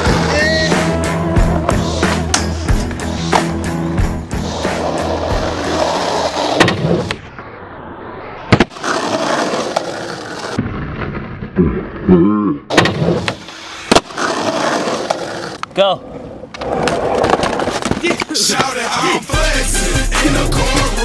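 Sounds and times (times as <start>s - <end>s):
music: 0.0s - 6.3s, 18.4s - 21.0s
skateboard wheels rolling on pavement: 0.0s - 12.1s, 12.7s - 19.3s
skateboard clack: 12.7s - 15.8s, 16.4s - 19.2s.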